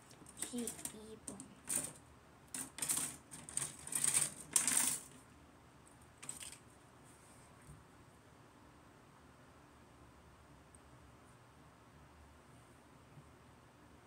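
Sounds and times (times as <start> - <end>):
plastic parts clicking and rattling: 0.0 - 5.2, 6.2 - 6.6.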